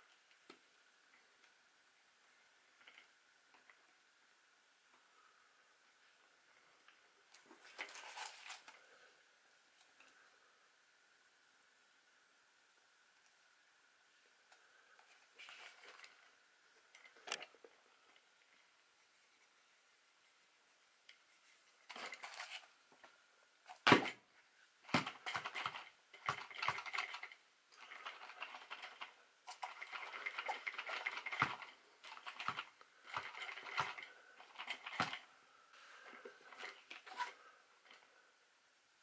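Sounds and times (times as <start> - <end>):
toy truck parts rattling and clicking: 7.6 - 8.7, 24.9 - 35.3.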